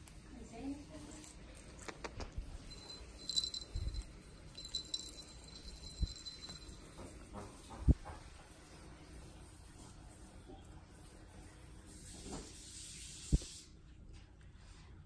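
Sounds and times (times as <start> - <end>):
light metallic jingling: 1.2 - 8.0.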